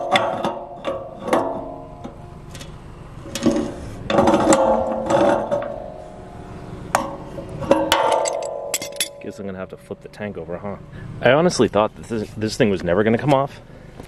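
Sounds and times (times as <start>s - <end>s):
metal clanks and knocks: 0.0s - 6.3s, 6.9s - 10.4s
metallic ringing and scraping: 0.0s - 10.9s, 11.5s - 12.6s.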